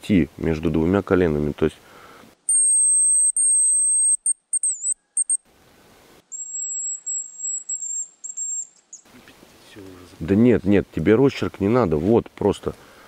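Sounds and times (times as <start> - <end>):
decoy whistle blown: 2.5 - 5.4, 6.3 - 8.6.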